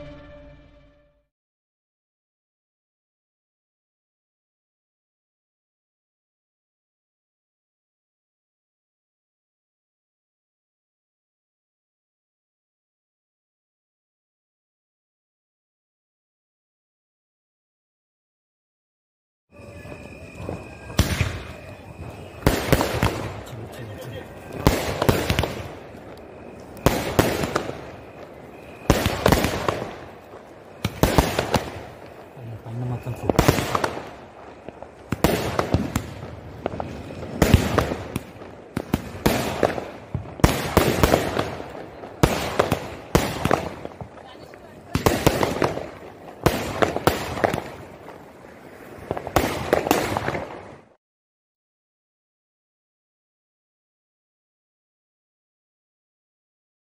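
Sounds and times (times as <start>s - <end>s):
firework bangs: 19.6s - 51.0s
firework crackling: 19.6s - 51.0s.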